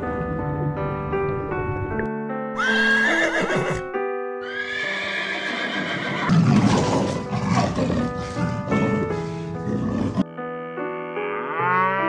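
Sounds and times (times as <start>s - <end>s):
background music: 0.0s - 12.0s
horse whinnying: 2.6s - 10.2s.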